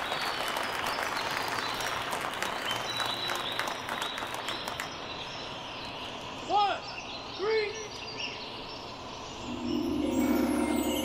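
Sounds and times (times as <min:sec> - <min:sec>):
crowd applauding: 0:00.0 - 0:05.0.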